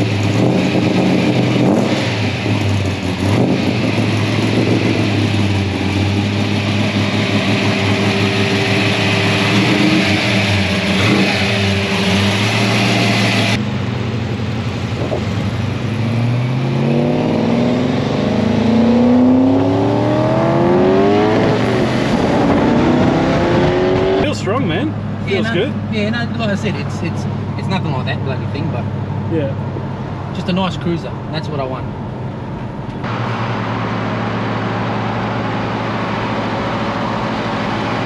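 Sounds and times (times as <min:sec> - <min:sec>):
car accelerating through gears: 0:00.0 - 0:13.6, 0:15.9 - 0:24.5
car engine idling: 0:00.0 - 0:16.0, 0:24.2 - 0:38.0.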